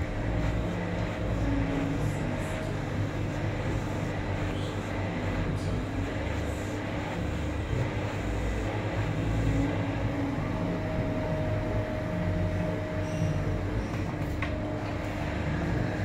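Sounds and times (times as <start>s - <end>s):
hair dryer running: 0.0s - 16.0s.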